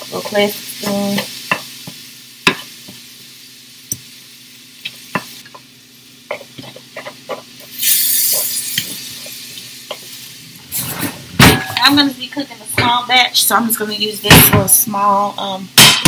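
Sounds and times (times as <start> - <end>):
meat sizzling in a skillet: 0.0 - 12.4
spoon tapping and scraping a pan: 1.1 - 3.0, 4.8 - 5.7, 6.3 - 7.5.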